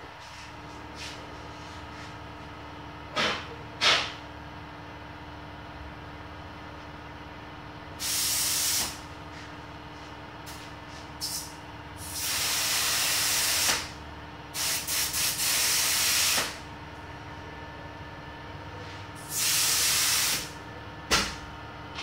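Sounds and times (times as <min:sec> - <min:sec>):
spray gun hissing in bursts: 0:08.0 - 0:09.0, 0:11.2 - 0:13.9, 0:14.6 - 0:16.6, 0:19.2 - 0:20.5.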